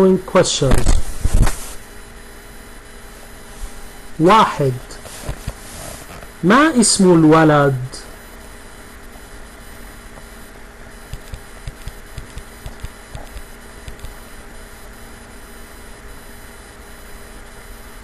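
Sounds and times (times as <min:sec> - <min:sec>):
faint mains hum: 0:00.0 - 0:18.0
steady hiss: 0:00.6 - 0:02.0, 0:03.0 - 0:07.6.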